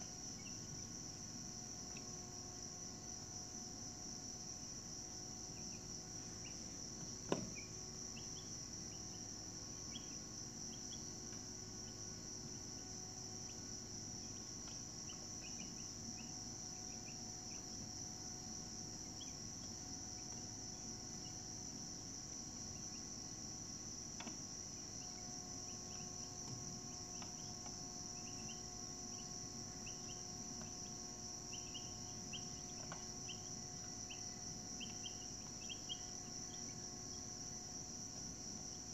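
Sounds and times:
insects trilling: 0:00.0 - 0:38.9
faint chirps: 0:27.1 - 0:37.3.

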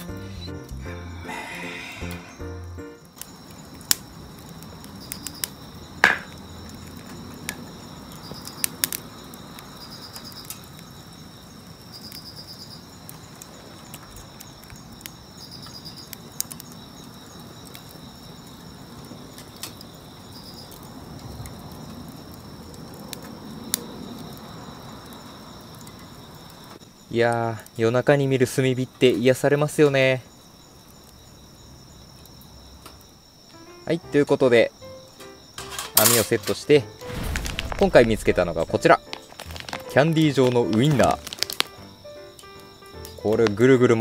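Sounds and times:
fire crackling and popping: 0:00.0 - 0:44.0
insects chirping: 0:00.0 - 0:44.0.

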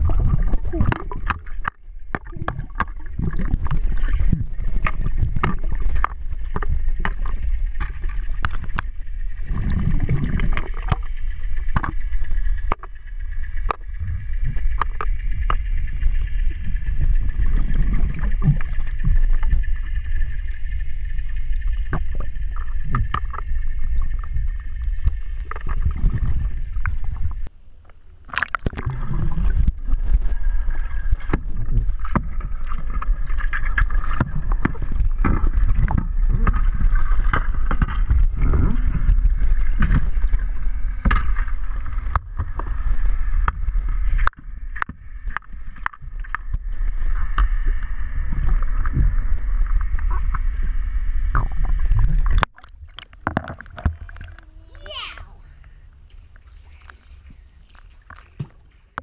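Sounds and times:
faint steady whine: 0:00.0 - 0:59.0
muffled underwater water movement: 0:00.0 - 0:59.0.

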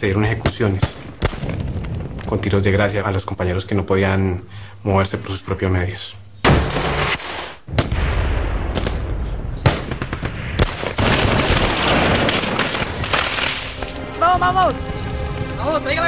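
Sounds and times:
gunshots: 0:06.5 - 0:13.8.

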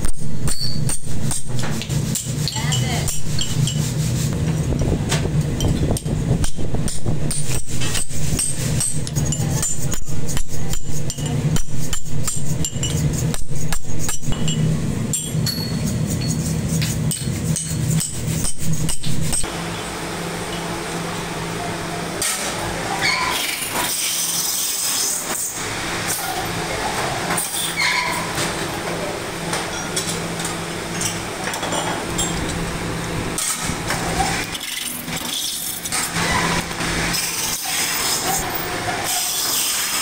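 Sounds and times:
workshop machinery humming: 0:00.0 - 0:40.0
knocks and clinks: 0:10.7 - 0:19.4, 0:29.5 - 0:32.6.

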